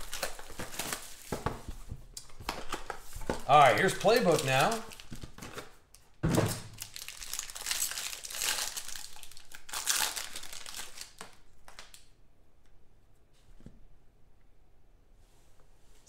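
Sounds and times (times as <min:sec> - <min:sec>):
foil wrapper tearing and crinkling: 0:00.0 - 0:01.4, 0:02.5 - 0:05.7, 0:06.7 - 0:12.1.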